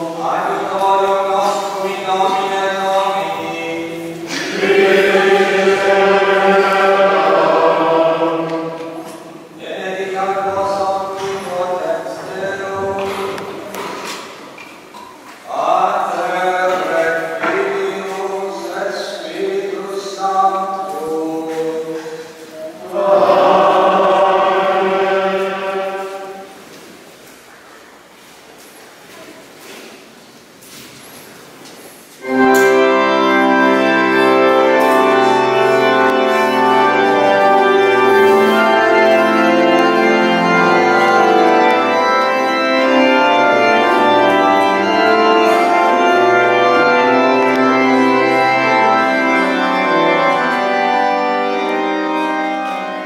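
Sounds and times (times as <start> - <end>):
choir chanting: 0.0 - 13.4, 22.5 - 26.7, 32.2 - 50.5.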